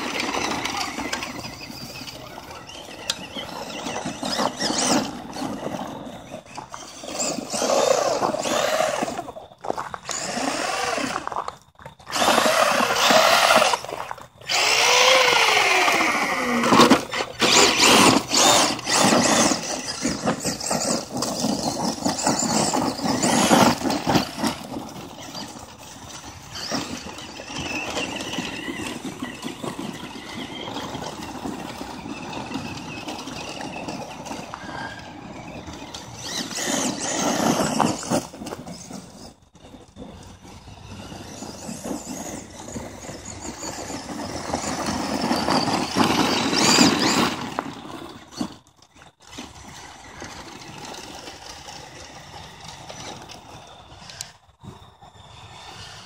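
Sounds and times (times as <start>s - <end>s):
tyres churning over gravel: 0.0s - 56.0s
electric motor whining: 10.0s - 11.3s, 12.0s - 54.4s.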